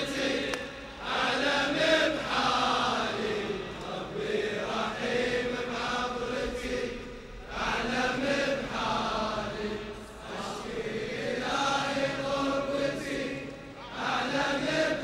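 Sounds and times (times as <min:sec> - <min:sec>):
men chanting a lament: 0:00.0 - 0:15.0.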